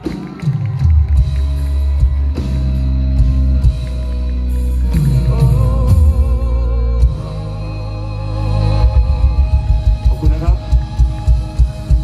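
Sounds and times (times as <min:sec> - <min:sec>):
live rock band playing loud: 0:00.0 - 0:12.0
male vocalist singing: 0:04.8 - 0:12.0.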